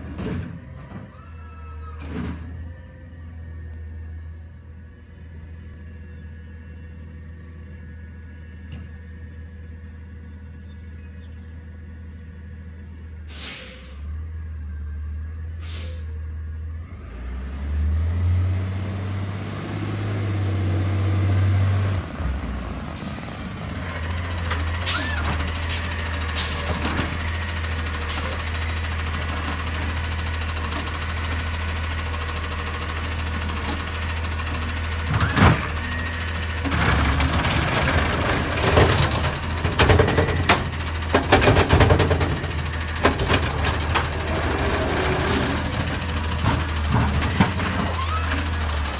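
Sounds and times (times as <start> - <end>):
garbage truck engine hum: 0.0 - 48.9
air-brake hisses: 13.3 - 14.0, 15.6 - 16.1.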